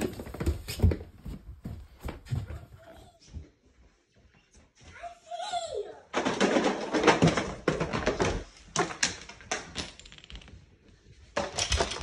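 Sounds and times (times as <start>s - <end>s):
books toppling onto tile floor: 0.0s - 2.5s, 6.1s - 10.6s.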